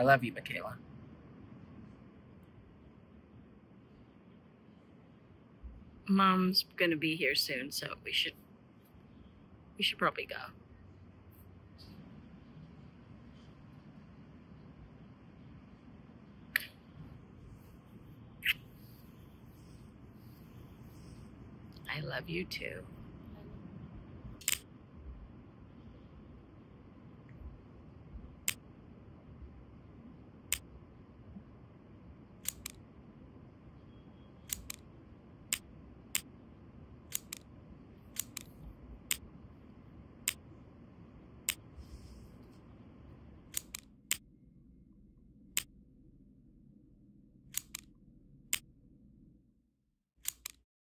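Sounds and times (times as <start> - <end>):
low background hiss: 0.0 - 43.9
sharp mechanical clicks: 24.4 - 24.7, 32.4 - 32.8, 34.4 - 34.9, 37.0 - 37.5, 38.1 - 39.3, 43.4 - 44.2, 47.5 - 47.9, 50.2 - 50.6.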